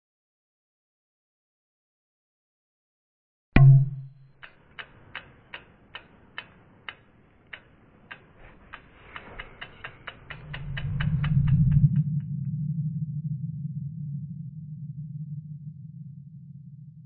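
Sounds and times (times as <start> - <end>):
clock-like ticks: 3.6 - 12.3
low hum: 6.7 - 17.0.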